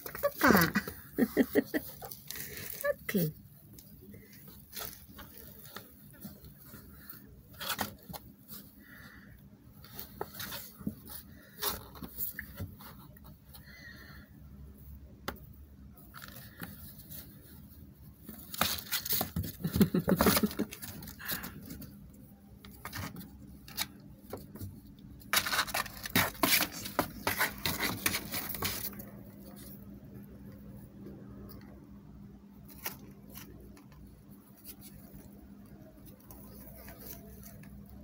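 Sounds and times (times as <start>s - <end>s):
scraping on cardboard box: 25.3s - 29.0s.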